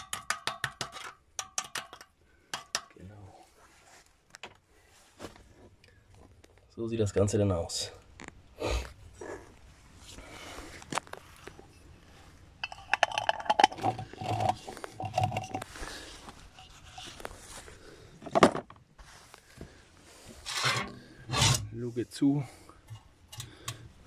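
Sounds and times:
metal clinking and rattling: 12.6s - 15.7s.

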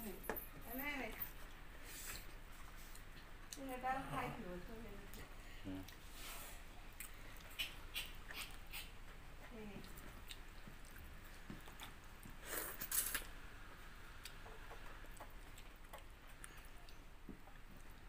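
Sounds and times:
eating by hand: 6.8s - 13.4s, 14.1s - 18.0s
chewing: 6.9s - 9.0s, 9.8s - 13.3s, 14.2s - 18.0s.

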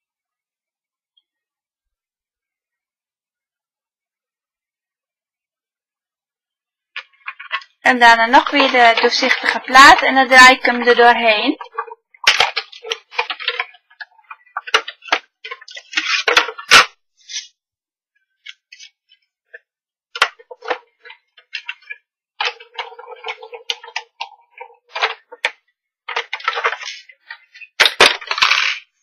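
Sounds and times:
plastic and metal plates clicking: 7.0s - 17.5s, 18.4s - 29.0s.

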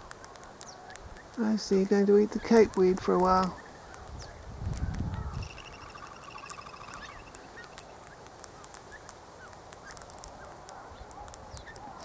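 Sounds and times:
birds chattering trill: 0.5s - 12.0s
short high bird chirps: 5.3s - 7.9s.

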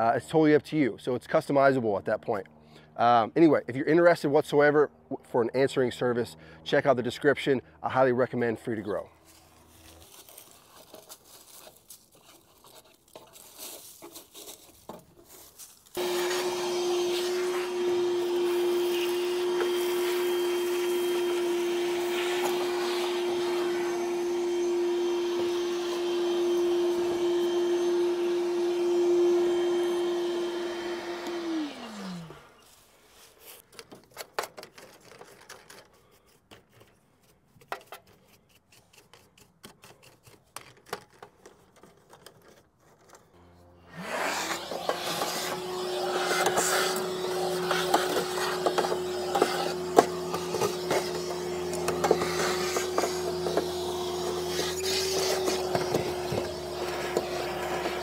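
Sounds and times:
vacuum cleaner humming: 16.0s - 32.7s, 43.4s - 58.0s.

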